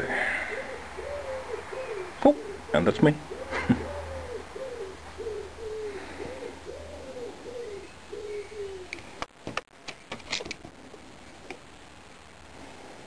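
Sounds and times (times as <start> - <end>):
pigeon cooing: 0.0 - 9.2.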